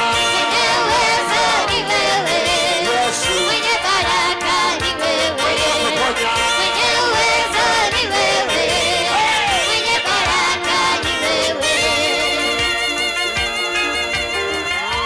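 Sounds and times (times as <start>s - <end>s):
person singing into microphone: 0.0s - 13.0s
congregation singing: 0.0s - 13.1s
instrumental backing: 0.0s - 15.0s.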